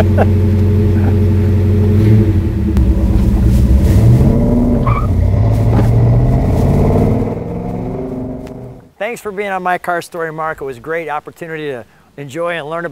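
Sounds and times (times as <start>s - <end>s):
car engine running and driving off: 0.0s - 8.9s.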